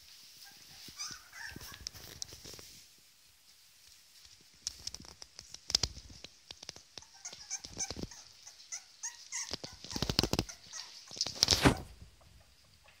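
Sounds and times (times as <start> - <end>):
puppies scratching and scuffling: 0.0 - 3.0, 3.9 - 12.0
puppies whimpering: 7.0 - 11.8.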